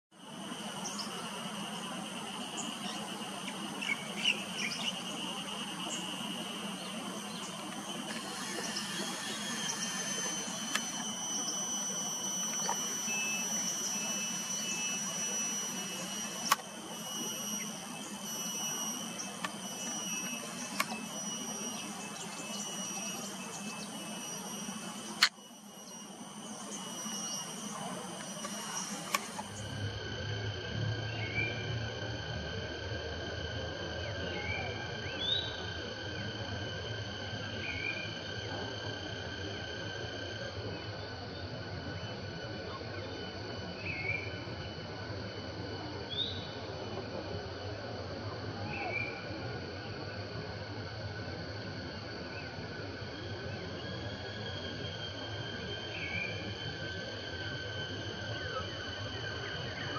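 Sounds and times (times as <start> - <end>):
insects droning: 0.1 - 59.9
pulsing insect trill: 0.1 - 59.9
low steady hum: 0.2 - 59.9
sharp clicks: 5.5 - 29.8.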